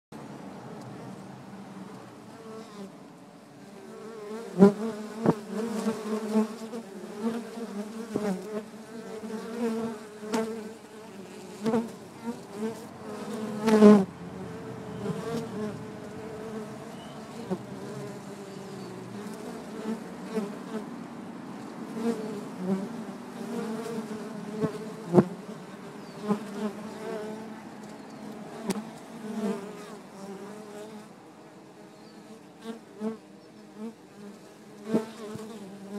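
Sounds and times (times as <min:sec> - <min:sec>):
bees buzzing: 0:04.0 - 0:31.2.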